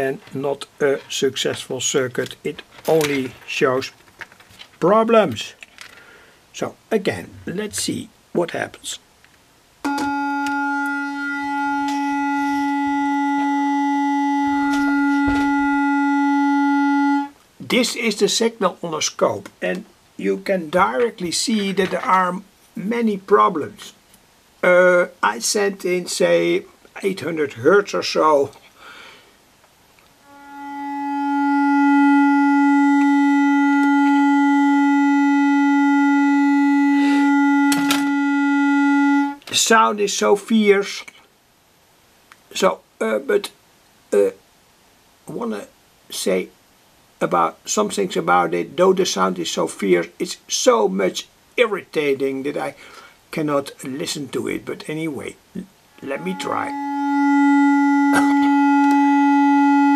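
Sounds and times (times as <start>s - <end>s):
harsh distorted loudspeaker tone: 9.9s - 23.7s, 32.6s - 39.8s, 55.2s - 59.2s.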